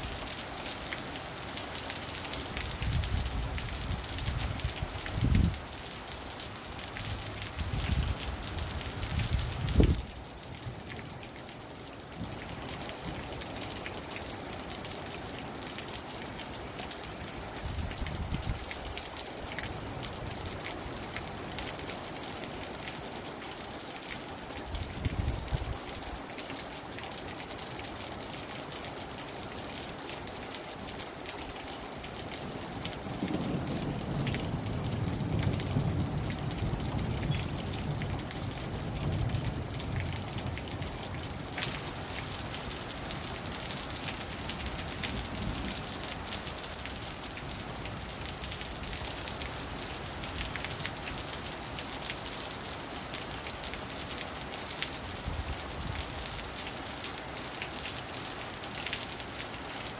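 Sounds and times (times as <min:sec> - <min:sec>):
steady rain falling: 0:00.0 - 0:59.9
raindrops ticking: 0:32.8 - 0:59.7.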